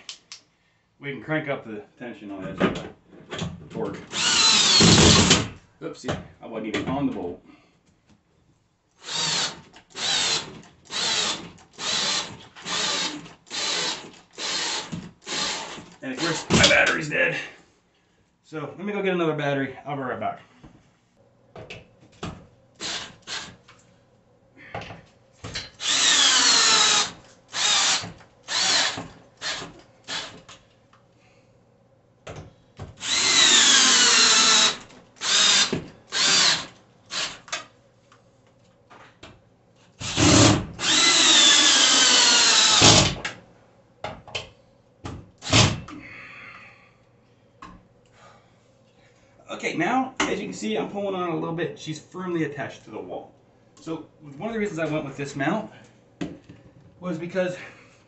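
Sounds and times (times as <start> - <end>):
cordless drill driving bolts: 4.1 - 5.5, 9.0 - 17.0, 22.8 - 23.5, 25.8 - 30.5, 33.0 - 37.5, 40.0 - 43.2, 45.4 - 45.8.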